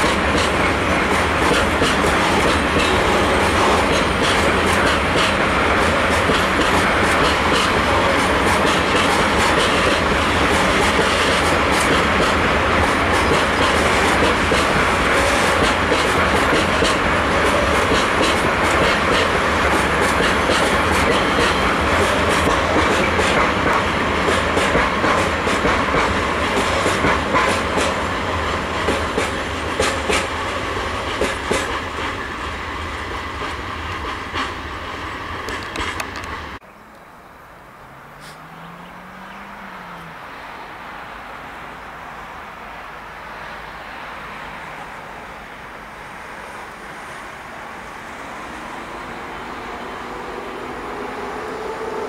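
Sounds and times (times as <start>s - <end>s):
wheels clicking over rail joints: 0.0s - 34.7s, 35.3s - 37.0s
freight train rolling past: 0.0s - 36.6s, 37.7s - 52.0s.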